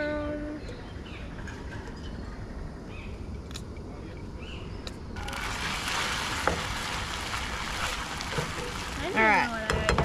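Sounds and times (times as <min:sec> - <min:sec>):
paste sizzling in hot oil: 0:05.3 - 0:09.7.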